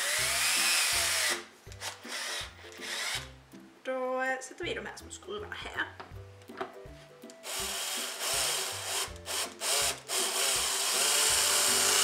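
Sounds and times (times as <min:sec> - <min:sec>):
cordless drill driving screws: 0:00.0 - 0:03.3, 0:07.4 - 0:12.0.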